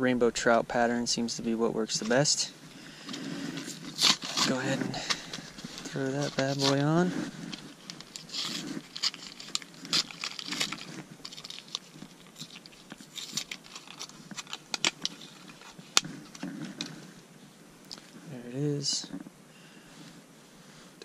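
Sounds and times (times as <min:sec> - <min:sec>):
paper packaging tearing: 0:03.5 - 0:16.9.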